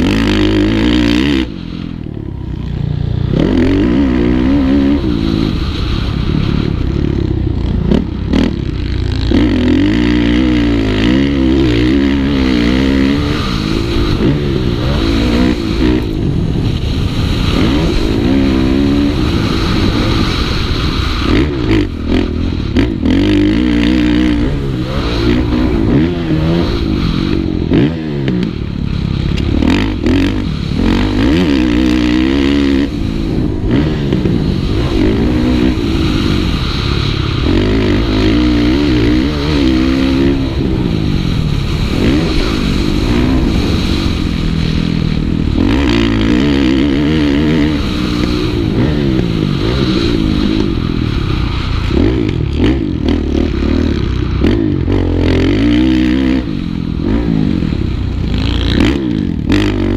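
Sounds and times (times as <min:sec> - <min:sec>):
motocross engine revving: 0:00.0 - 0:59.9.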